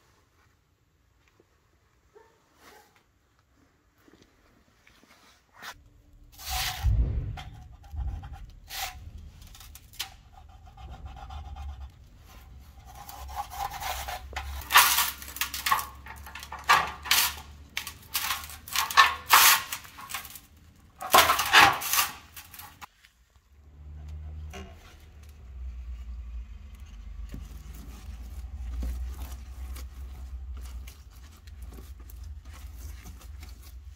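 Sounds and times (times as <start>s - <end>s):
metal sheet knocks: 6.5s - 11.1s.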